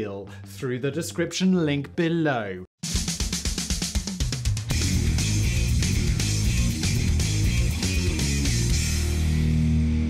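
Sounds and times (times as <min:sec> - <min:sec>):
fast drum kit pattern: 0:02.8 - 0:09.3.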